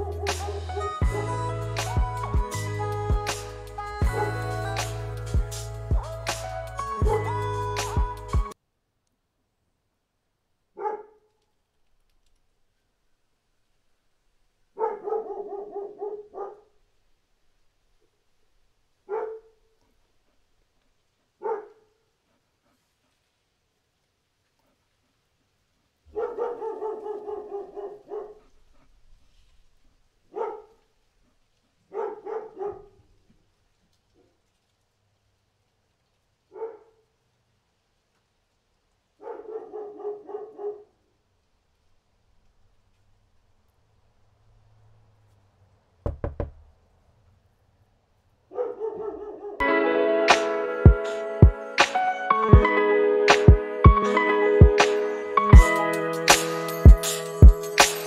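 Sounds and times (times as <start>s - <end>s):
dog barking: 0.0s - 1.4s, 10.7s - 11.4s, 14.7s - 16.8s, 19.0s - 19.8s, 21.4s - 22.1s, 26.0s - 29.0s, 30.3s - 33.1s, 36.5s - 37.2s, 39.2s - 41.0s, 48.5s - 49.6s.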